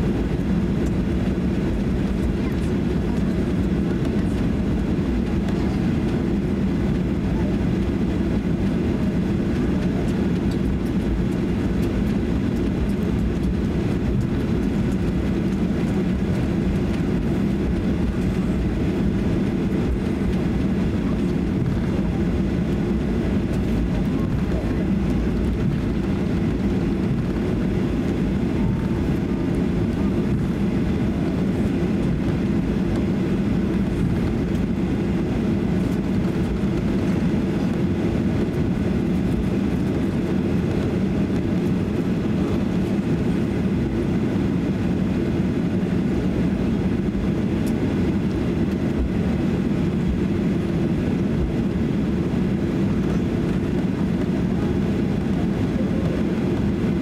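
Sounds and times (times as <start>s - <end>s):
airplane cabin engine drone: 0.0s - 57.0s.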